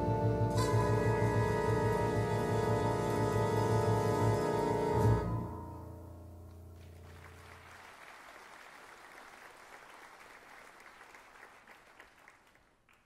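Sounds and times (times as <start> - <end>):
audience applause: 6.8 - 13.0.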